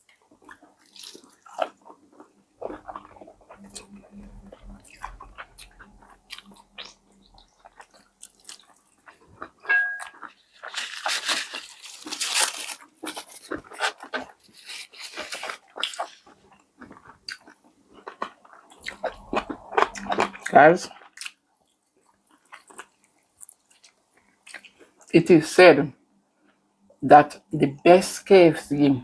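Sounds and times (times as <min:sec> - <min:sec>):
chewing: 0:00.0 - 0:25.1
crunching bites of fried chicken: 0:10.2 - 0:21.4.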